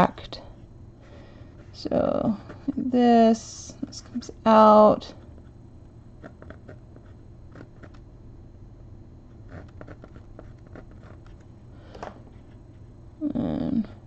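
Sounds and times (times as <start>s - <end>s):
low room hum: 0.0s - 14.0s
charcoal pencil scratching on board: 6.2s - 8.0s, 9.5s - 11.4s.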